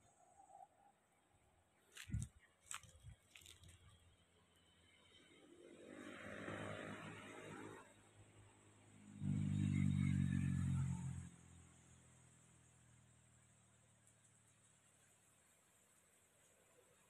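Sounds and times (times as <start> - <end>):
motor vehicle approaching: 5.4 - 14.3.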